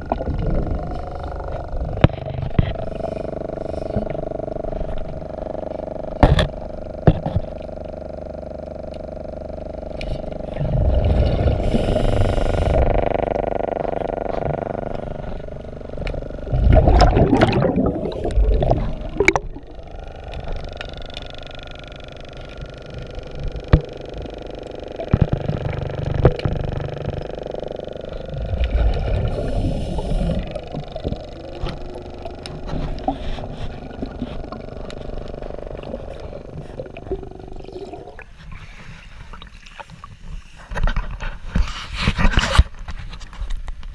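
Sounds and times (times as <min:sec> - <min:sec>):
underwater air bubbles gurgling: 0:00.0 - 0:08.4, 0:09.0 - 0:40.0
steady mechanical hum: 0:00.0 - 0:43.9
water sloshing and splashing: 0:16.0 - 0:21.2, 0:28.2 - 0:41.3.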